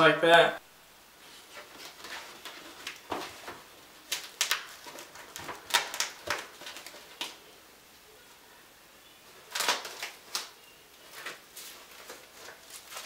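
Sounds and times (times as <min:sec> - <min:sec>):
cloth rustling: 0:09.4 - 0:13.0.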